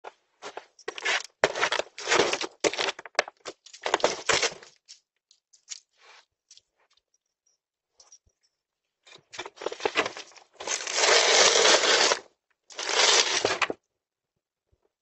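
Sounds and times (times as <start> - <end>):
dog tearing package: 10.6 - 13.7.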